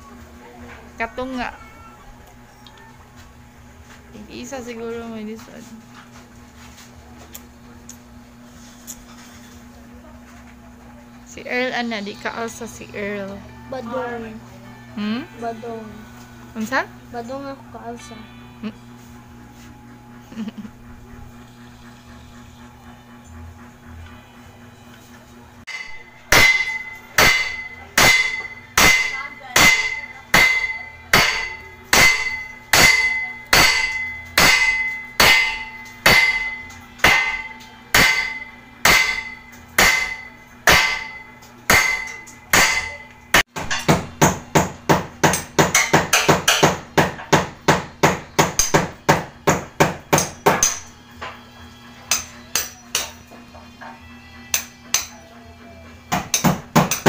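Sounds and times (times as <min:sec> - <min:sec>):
hammer blows with ringing: 0:25.7 - 0:55.4.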